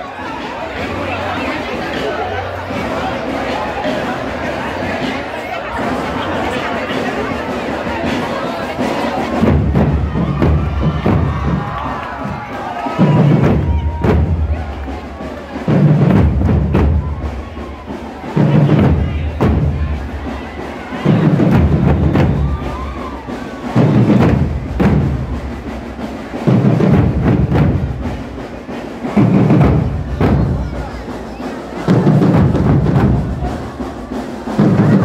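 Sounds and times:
bass drums beating: 0:09.1 - 0:35.0.

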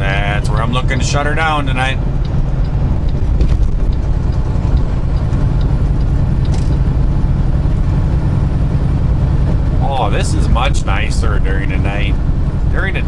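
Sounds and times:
truck engine and road drone: 0:00.0 - 0:13.0.

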